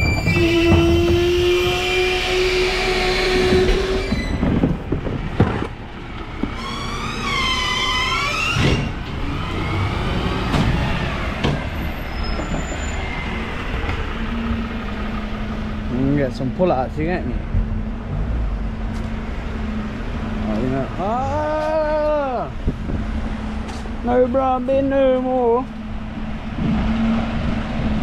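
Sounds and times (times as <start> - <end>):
wavering metallic squeal: 0.0 - 4.4, 6.6 - 10.0
garbage truck machinery whine: 0.0 - 5.5.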